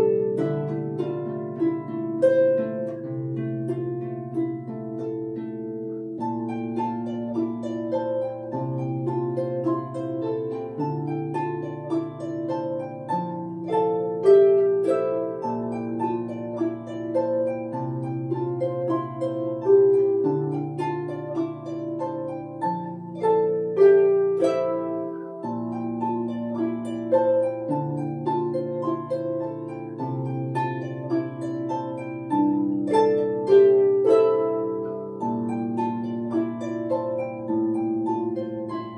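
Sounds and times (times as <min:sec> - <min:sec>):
plucked harp melody: 0:00.0 - 0:38.9.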